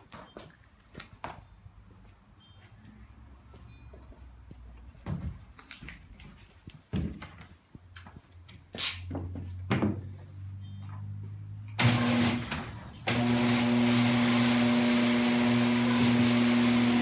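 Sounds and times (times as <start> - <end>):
power drill driving screws: 11.8 - 17.0.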